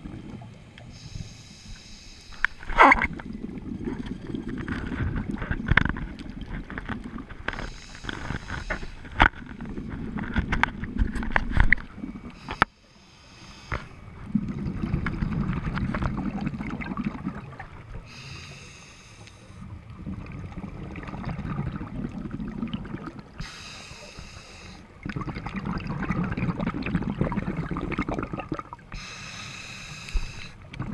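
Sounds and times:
exhaled bubbles rumbling underwater: 0.0s - 1.2s, 2.6s - 12.5s, 13.9s - 18.3s, 19.5s - 30.9s
regulator hiss: 0.9s - 2.5s, 12.4s - 13.8s, 23.4s - 24.8s, 29.0s - 30.6s.

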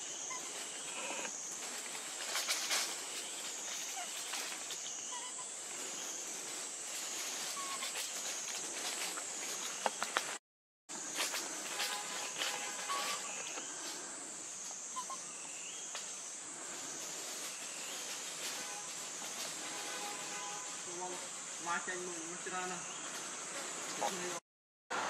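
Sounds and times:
high insect drone: 0.0s - 24.4s
rustles and clicks: 0.4s - 5.0s, 5.7s - 10.4s.

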